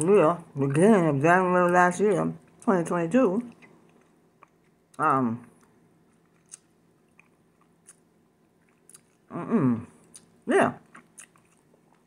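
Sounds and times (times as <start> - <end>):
person chewing: 3.4 - 12.0
woman murmuring: 9.3 - 9.9.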